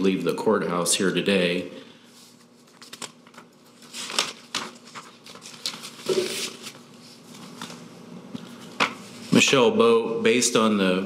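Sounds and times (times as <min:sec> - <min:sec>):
papers rustling: 0:02.2 - 0:07.9.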